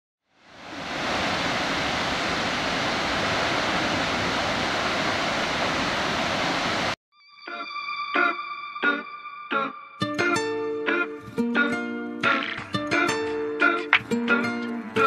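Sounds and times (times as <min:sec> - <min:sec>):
waterfall roaring: 0:00.4 - 0:07.0.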